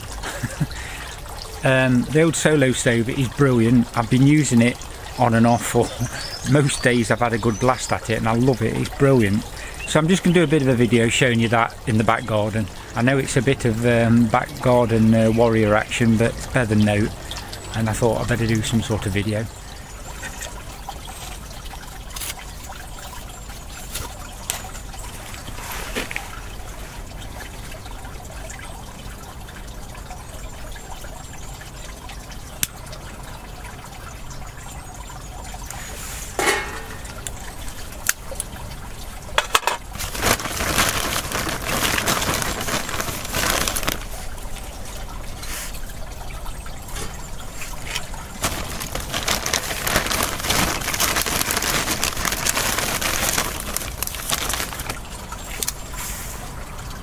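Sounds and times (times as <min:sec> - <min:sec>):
water trickling: 0:00.0 - 0:57.0
kindling crackling: 0:39.9 - 0:44.6, 0:47.1 - 0:55.8.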